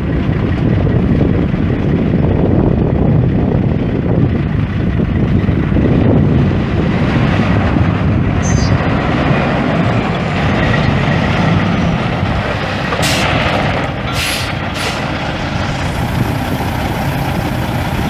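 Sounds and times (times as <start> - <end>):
diesel truck engine running: 0.0 - 18.0
air hissing: 14.1 - 15.1.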